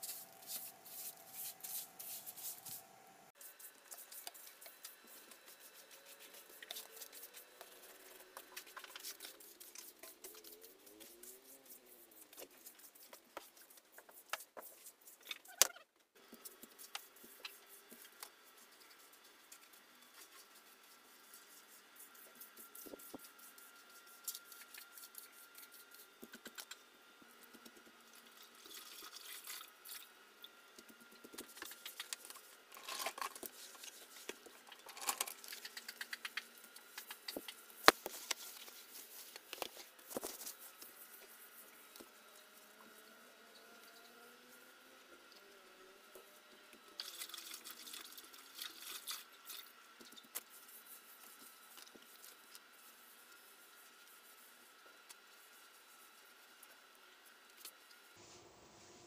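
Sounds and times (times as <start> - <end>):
broom sweeping a floor: 0.0 - 15.5, 16.3 - 26.1, 31.4 - 35.1, 36.9 - 42.2, 58.2 - 59.0.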